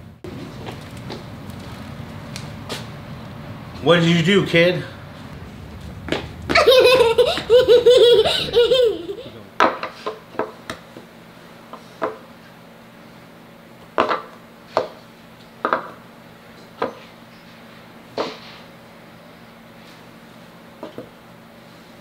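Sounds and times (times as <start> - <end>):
laughter: 6.3 - 9.4.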